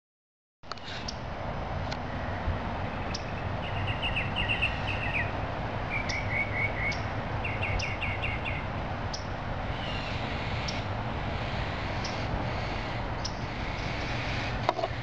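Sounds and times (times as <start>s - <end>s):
outdoor background hum: 0.6s - 15.0s
songbird chirping: 2.9s - 10.9s.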